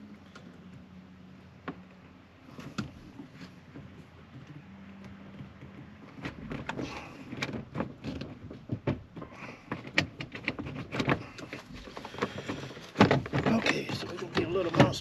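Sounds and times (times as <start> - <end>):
clicks and knocks on door trim: 5.5 - 15.0.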